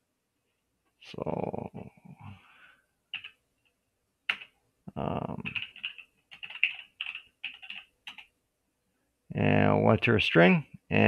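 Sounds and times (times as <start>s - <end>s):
typing on computer keyboard: 3.1s - 3.4s, 4.3s - 4.6s, 5.3s - 8.3s.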